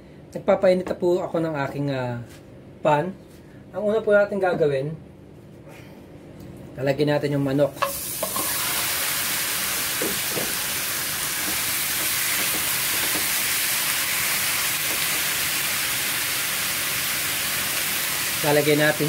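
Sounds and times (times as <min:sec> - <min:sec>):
chicken sizzling in frying pan: 0:07.8 - 0:19.0.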